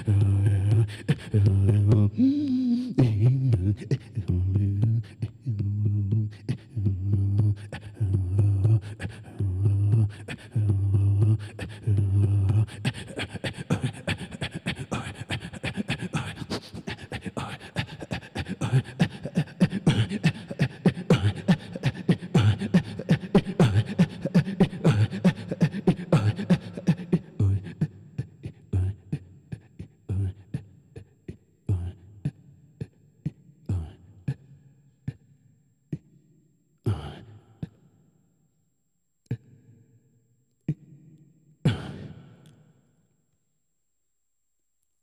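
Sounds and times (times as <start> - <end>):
beatboxing breath puffs and clicks: 12.6 - 31.4.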